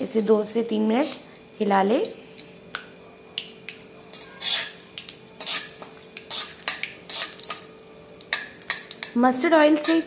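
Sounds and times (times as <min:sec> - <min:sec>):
spices sizzling in oil: 0:03.4 - 0:10.0
metal spatula scraping a pan: 0:04.1 - 0:07.7, 0:08.3 - 0:10.0.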